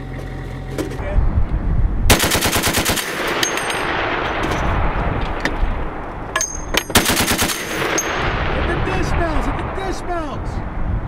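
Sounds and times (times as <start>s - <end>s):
heavy machine gun firing bursts: 2.1s - 4.3s, 7.0s - 8.6s.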